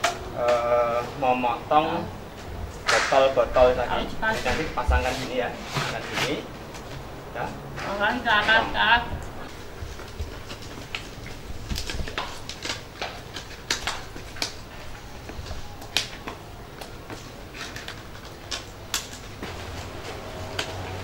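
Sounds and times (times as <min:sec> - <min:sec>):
scissors snipping plastic bottles: 0:10.0 - 0:21.0.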